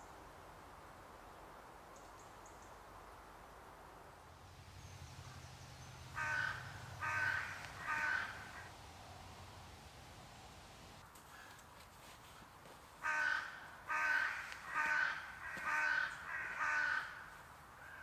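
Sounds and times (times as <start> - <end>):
crow cawing: 6.1 - 8.7, 11.3 - 11.6, 13.0 - 18.0.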